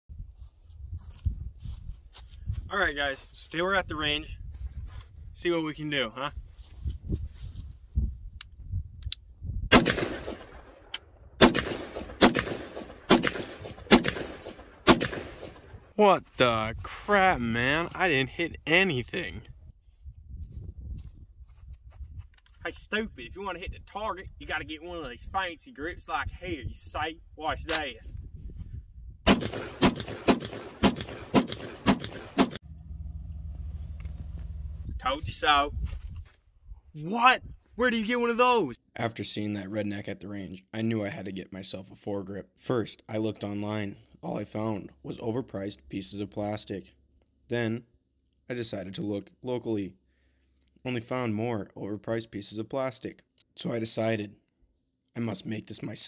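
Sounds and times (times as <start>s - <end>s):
rifle shots with echo: 9.7s - 15.8s, 29.3s - 32.6s.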